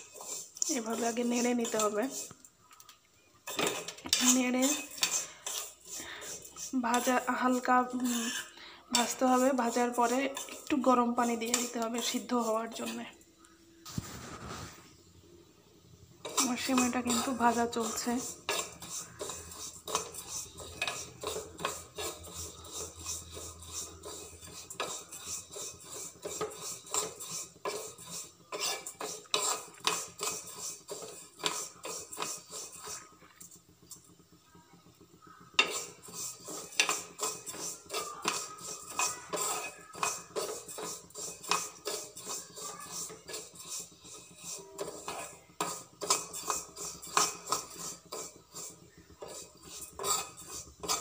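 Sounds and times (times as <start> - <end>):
spoon scraping metal pan: 0.0 - 2.5, 3.4 - 13.2, 16.2 - 34.2, 35.0 - 51.0.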